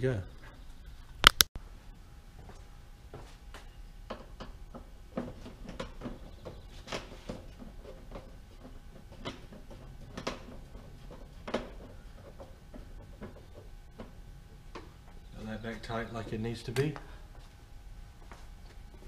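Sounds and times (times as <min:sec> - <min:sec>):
engine cowl clicks and knocks: 0:04.1 - 0:15.0.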